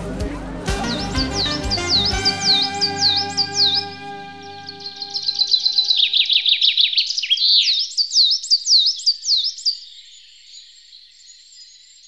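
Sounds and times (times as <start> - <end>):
songbird chirping: 0.0 - 12.0.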